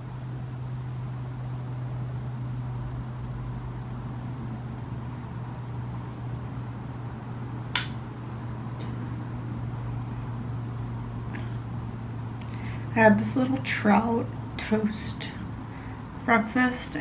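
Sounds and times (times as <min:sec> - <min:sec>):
low hum: 0:00.0 - 0:17.0
room noise hiss: 0:00.0 - 0:17.0
sharp click: 0:07.7 - 0:08.0.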